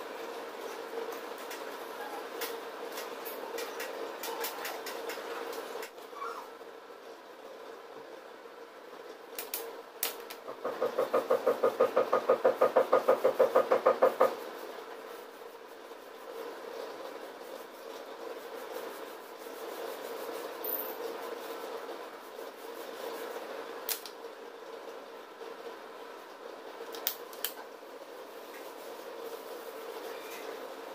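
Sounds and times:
brush scrubbing corrugated surface: 10.7 - 20.6, 21.2 - 23.8, 28.1 - 30.9.

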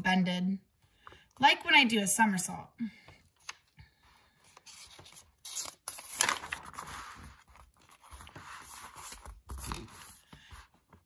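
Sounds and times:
book page rustling: 3.4 - 11.0.

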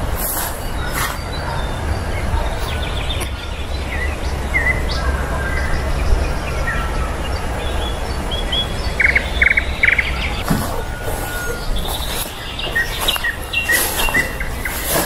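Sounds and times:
songbirds chirping: 0.0 - 15.0
buzzy bird chirps: 0.2 - 15.0
short high bird calls: 6.5 - 15.0.

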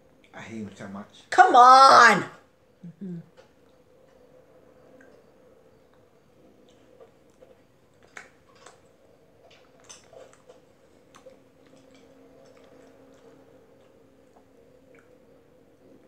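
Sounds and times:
low steady hum: 0.0 - 16.0
small clicks and ticks: 3.3 - 15.3.

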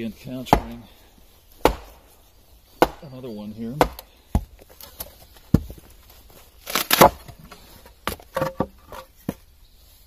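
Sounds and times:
wood splitting with crackling tear: 3.8 - 9.1.

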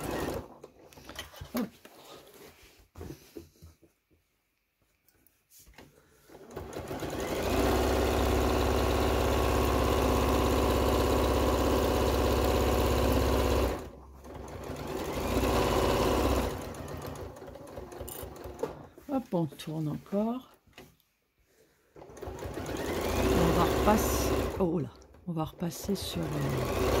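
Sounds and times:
sewing machine stitching: 0.0 - 1.7, 6.3 - 20.9, 21.9 - 27.0.

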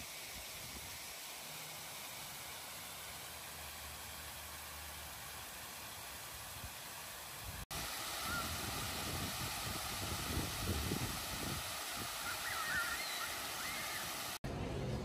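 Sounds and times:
fountain jets splashing: 0.0 - 14.5
wavering bird calls: 8.2 - 8.6, 12.1 - 14.2.

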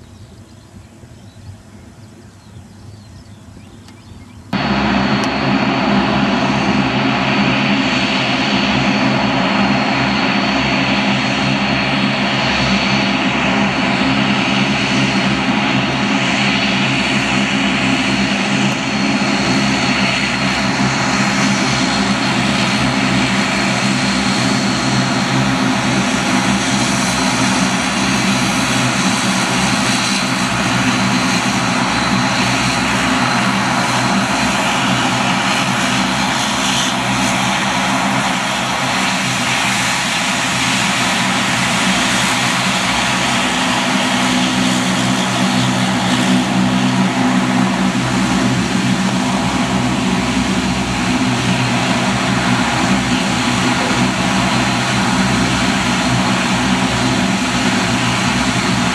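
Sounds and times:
high engine whine: 0.0 - 58.9
propeller drone: 0.0 - 58.9.

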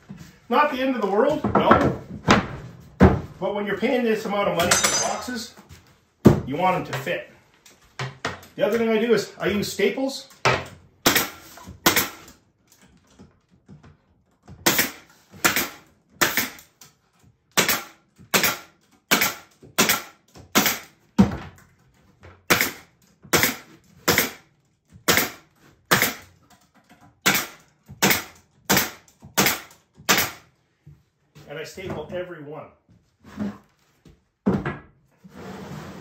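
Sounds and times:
pneumatic stapler shots: 11.0 - 12.3, 14.6 - 16.7, 17.6 - 20.9, 22.5 - 22.8, 23.4 - 24.4, 25.0 - 26.2, 27.2 - 30.4.

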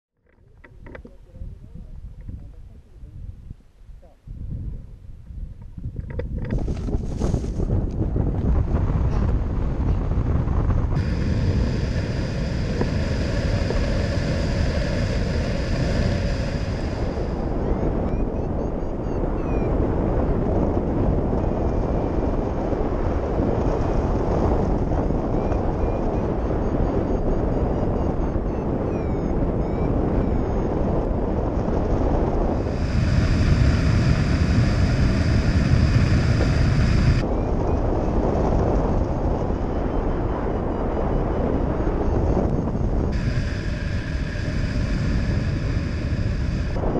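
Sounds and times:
wind buffeting microphone: 0.3 - 46.9
steady high whistle: 11.0 - 19.8, 25.4 - 30.8, 39.8 - 46.9
faint steady tones: 11.0 - 22.0, 24.4 - 46.9.

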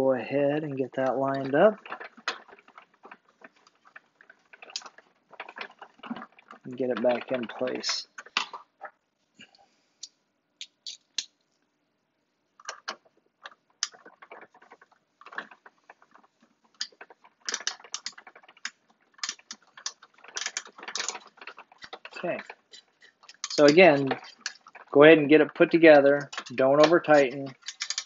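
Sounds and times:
plastic toy parts clicking: 12.6 - 28.0.

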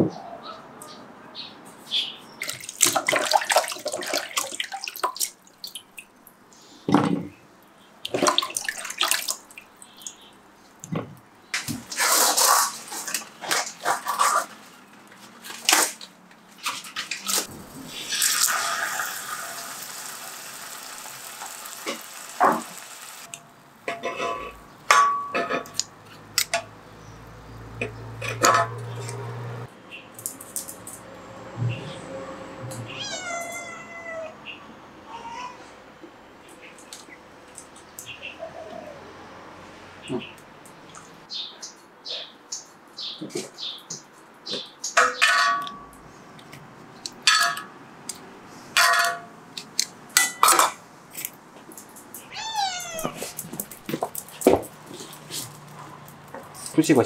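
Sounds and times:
dishes clinking: 23.9 - 25.8, 45.0 - 45.9, 50.2 - 50.8
cat meowing: 32.9 - 34.5, 35.1 - 35.7, 52.2 - 53.4.

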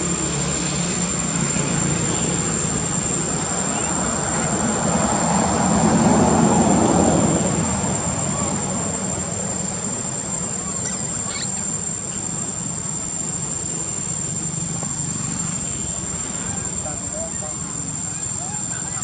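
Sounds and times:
monkeys squeaking: 10.6 - 12.0, 18.0 - 19.0.

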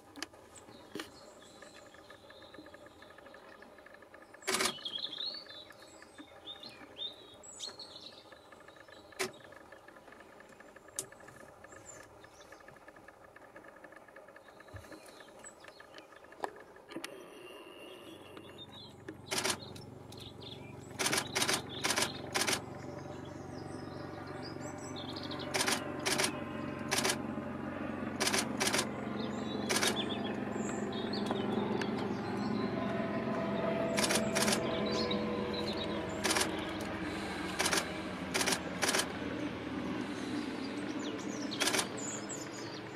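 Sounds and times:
outdoor ambience: 0.0 - 42.9
short sharp clicks: 18.2 - 19.8, 21.0 - 22.6, 25.5 - 27.2, 28.2 - 28.9, 29.7 - 30.1, 34.0 - 34.7, 36.2 - 36.9, 37.5 - 39.1, 41.6 - 42.0.

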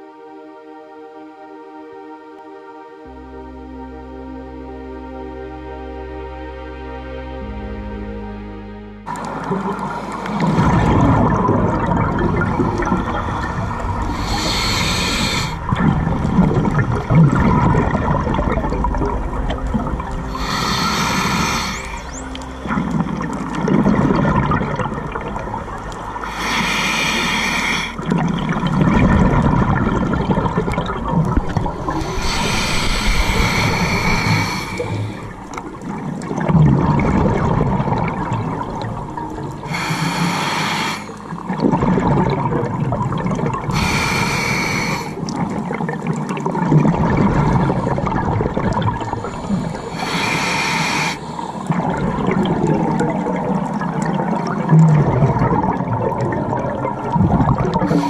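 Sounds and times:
bubbling exhalations: 9.1 - 58.0
hissing regulator inhalations: 9.2 - 11.3, 12.6 - 17.0, 20.3 - 23.3, 26.2 - 28.2, 31.7 - 35.8, 39.6 - 41.4, 43.7 - 45.3, 49.0 - 51.9, 57.8 - 58.0.

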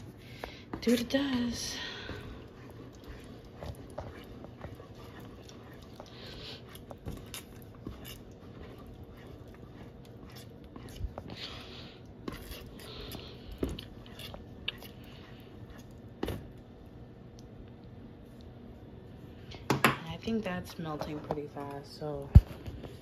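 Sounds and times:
spatula stirring cheese sauce: 0.0 - 16.8.

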